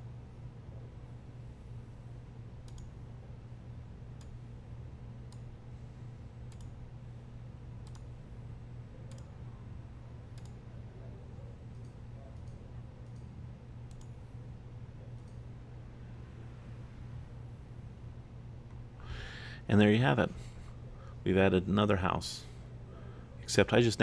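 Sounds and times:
low electrical hum: 0.0s - 24.0s
computer mouse clicking: 2.6s - 3.0s, 5.3s - 5.5s, 6.5s - 6.8s, 7.8s - 8.1s, 9.0s - 9.3s, 10.3s - 10.6s, 11.7s - 14.2s, 15.2s - 15.4s.

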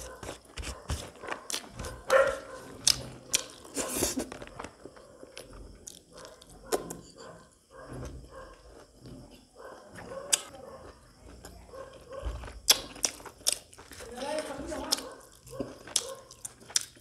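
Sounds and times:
chewing with wet lip smacks: 10.3s - 14.0s, 14.9s - 17.0s.

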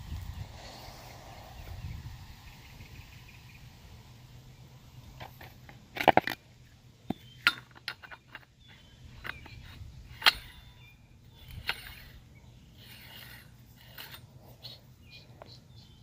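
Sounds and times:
plastic and metal clinks and knocks: 5.2s - 6.4s, 7.1s - 10.8s.

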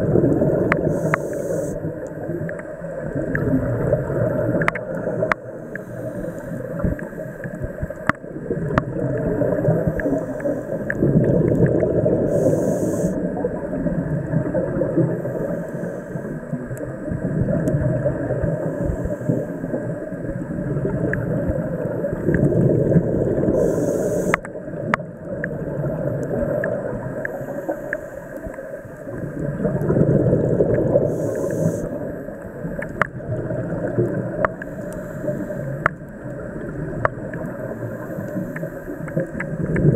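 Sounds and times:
exhaled bubbles underwater: 0.0s - 39.9s
regulator inhalation hiss: 0.6s - 1.9s, 5.6s - 7.6s, 9.7s - 11.0s, 12.2s - 13.2s, 15.2s - 16.4s, 23.4s - 24.4s, 31.0s - 32.1s, 34.6s - 35.9s
faint clicks: 0.6s - 3.5s, 4.5s - 13.2s, 23.5s - 25.6s, 26.2s - 29.5s, 32.6s - 33.2s, 33.9s - 39.9s.

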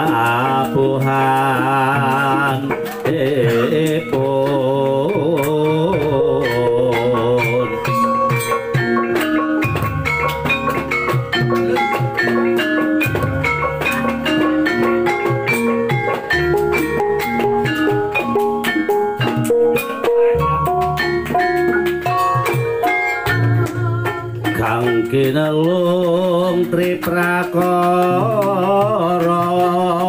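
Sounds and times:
hand drum: 0.0s - 30.0s.

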